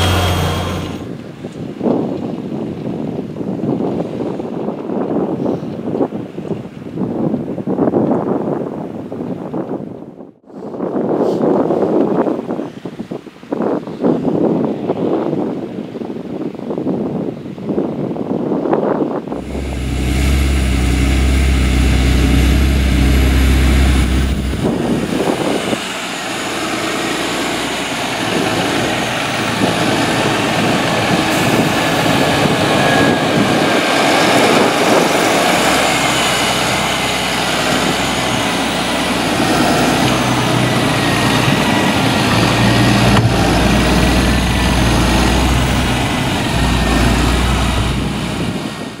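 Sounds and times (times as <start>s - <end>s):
tractor diesel engine under load: 0.0s - 1.8s, 19.2s - 49.0s
thin steady whine: 19.4s - 27.0s.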